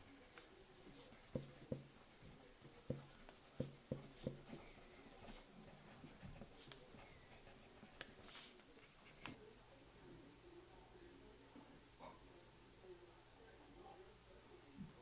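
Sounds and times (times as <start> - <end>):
pencil scratching on paper: 0.1 - 9.4
soft pencil taps: 0.3 - 5.4.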